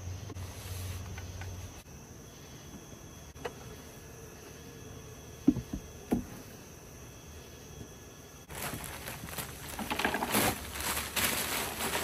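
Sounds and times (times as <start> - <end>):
insect chirring: 0.0 - 12.0
wooden hive parts knocking: 5.4 - 6.5, 9.6 - 10.6.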